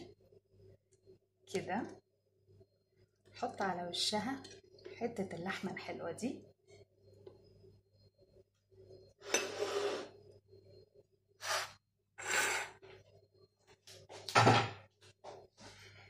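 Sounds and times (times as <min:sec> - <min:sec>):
dishes scraping and rustling: 0:09.2 - 0:10.1.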